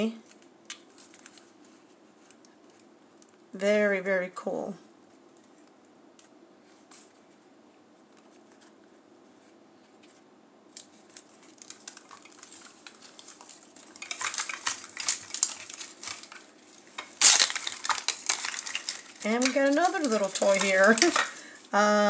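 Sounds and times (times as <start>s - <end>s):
plastic wrapping crinkling: 0.0s - 3.5s, 8.0s - 22.0s.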